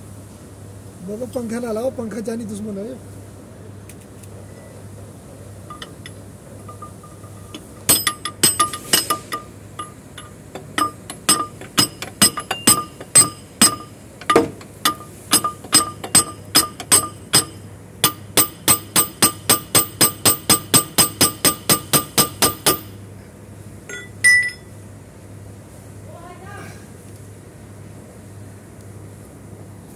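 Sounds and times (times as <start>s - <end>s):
hammer striking steel: 5.7s - 23.0s, 23.9s - 24.6s
light metal clinks: 5.7s - 23.0s, 23.9s - 24.7s.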